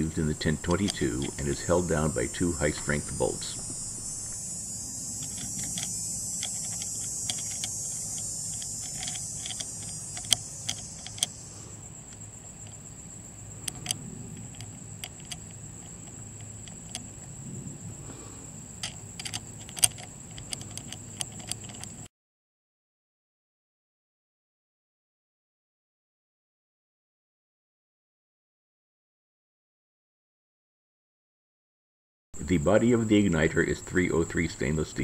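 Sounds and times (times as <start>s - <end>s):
steady high-pitched hiss: 0.0s - 22.1s, 32.4s - 35.0s
small metallic clicks and taps: 5.2s - 11.3s, 13.6s - 17.2s, 18.8s - 22.1s.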